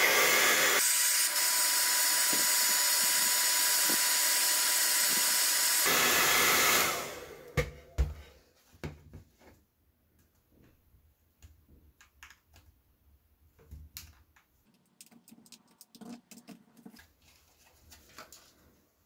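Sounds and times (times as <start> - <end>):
hair dryer blowing: 0.0 - 7.8.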